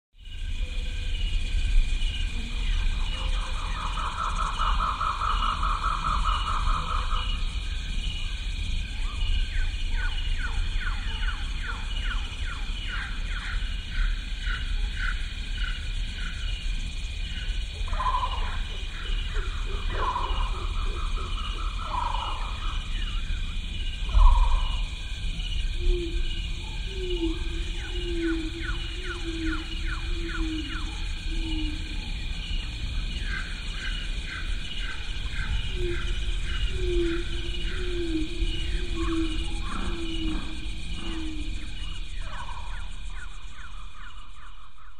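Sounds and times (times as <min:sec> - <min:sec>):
low rumble: 0:33.5 - 0:44.8.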